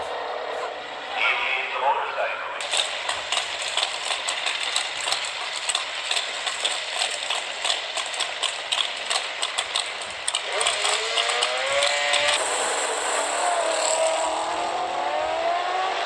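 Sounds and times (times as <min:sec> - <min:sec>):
engine revving up: 0:00.0 - 0:01.4, 0:09.7 - 0:16.0
drag race engines crackling: 0:00.0 - 0:16.0.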